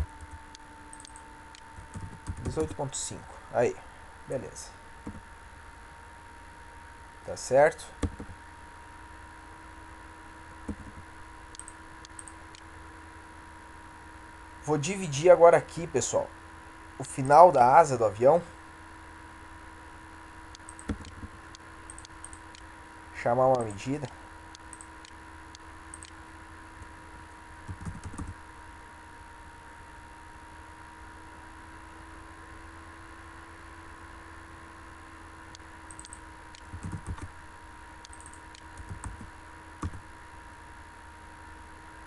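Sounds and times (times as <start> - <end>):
faint electrical hum: 0.0 - 42.0
computer mouse clicking: 0.2 - 2.8, 10.7 - 12.6, 20.5 - 22.7, 23.5 - 26.2, 27.7 - 28.4, 35.5 - 37.3, 38.0 - 40.0
mouse and keyboard clicks: 0.9 - 2.8, 20.6 - 21.3, 25.9 - 26.2, 35.9 - 37.3.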